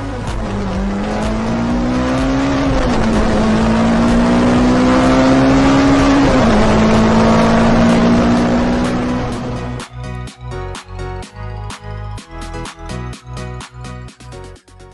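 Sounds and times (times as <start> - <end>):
car engine accelerating: 0.0 - 10.2.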